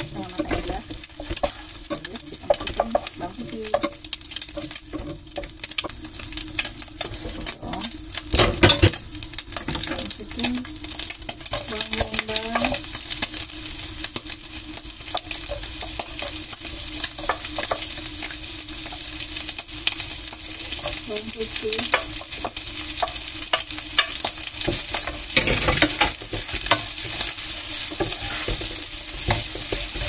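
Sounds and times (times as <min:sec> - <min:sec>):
wooden spatula scraping pan: 0:00.0 - 0:03.9, 0:07.0 - 0:07.6, 0:24.6 - 0:30.0
oil sizzling in a frying pan: 0:00.0 - 0:30.0
onions sizzling in oil: 0:00.0 - 0:30.0.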